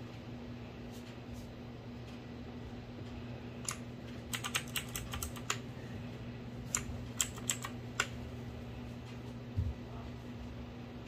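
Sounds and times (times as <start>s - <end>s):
mechanical keyboard clicks: 3.6s - 5.6s, 6.7s - 8.1s.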